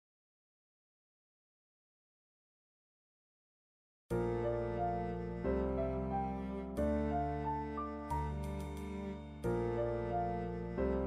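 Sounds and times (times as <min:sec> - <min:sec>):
low held chords: 0:04.1 - 0:11.0
piano melody: 0:04.1 - 0:11.0.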